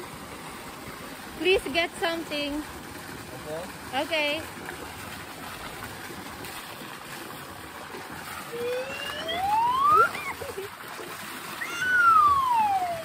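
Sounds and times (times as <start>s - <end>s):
water jet splashing into pond: 0.0s - 13.0s
gliding high tones: 8.5s - 10.4s.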